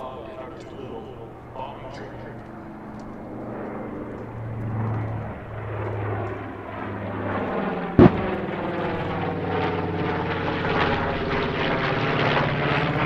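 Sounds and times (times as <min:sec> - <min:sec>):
piston aircraft engines droning: 0:00.0 - 0:13.0
sharp bang: 0:08.0 - 0:08.9.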